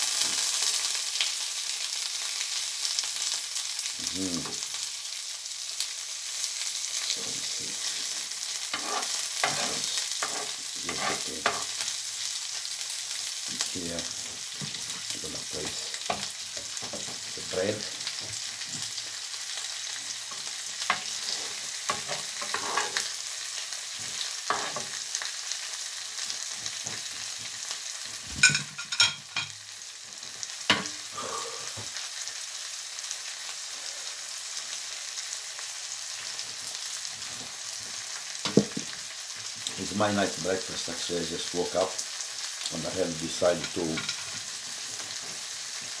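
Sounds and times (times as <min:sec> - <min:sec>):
fish sizzling in a pan: 0:00.0 - 0:46.0
cutlery clinking on plate: 0:28.4 - 0:29.5.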